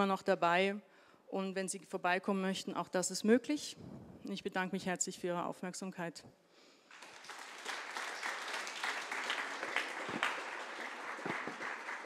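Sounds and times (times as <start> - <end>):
audience applauding: 6.9 - 12.0.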